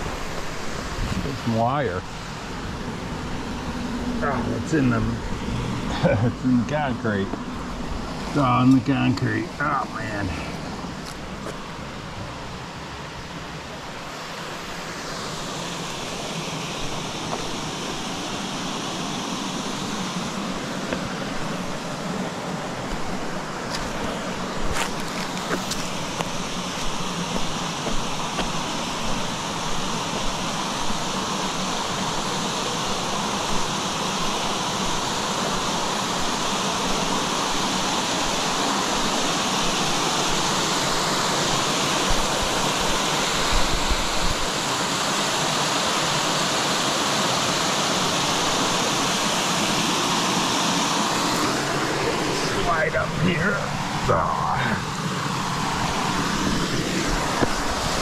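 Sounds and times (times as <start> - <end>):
small waterfall rushing: 0.0 - 58.0
footsteps on concrete and rock: 10.4 - 11.7, 16.8 - 17.6, 20.8 - 21.8, 22.8 - 30.4.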